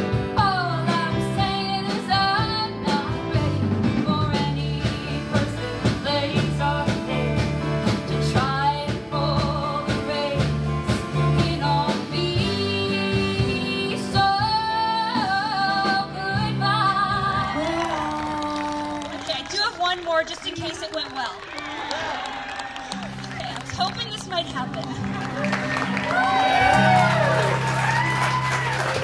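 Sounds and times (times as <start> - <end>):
acoustic guitar: 0.0 - 19.0, 23.0 - 29.0
bass guitar: 0.0 - 19.3, 23.0 - 29.0
drums: 0.0 - 21.4, 22.9 - 29.0
woman singing: 0.2 - 19.3.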